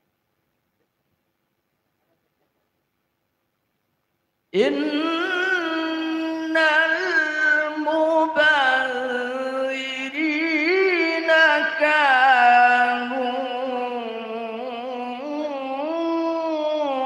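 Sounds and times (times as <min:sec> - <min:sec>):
man chanting into a microphone: 0:04.6 - 0:17.0.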